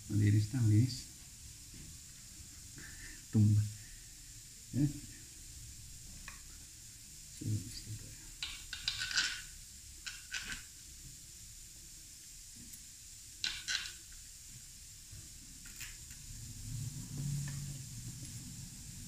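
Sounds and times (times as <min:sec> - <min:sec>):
faint hiss: 0:00.0 - 0:19.0
small metal parts clicking: 0:08.4 - 0:10.7, 0:13.4 - 0:14.2.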